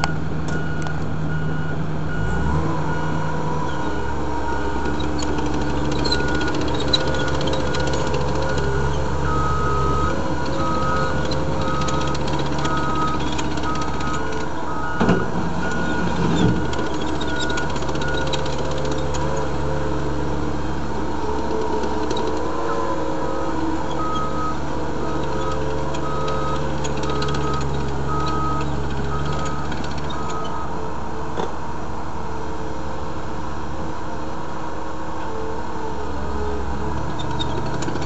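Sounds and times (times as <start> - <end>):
high beeping: 0.0 - 19.9, 21.2 - 30.8
diesel engine running: 0.0 - 38.0.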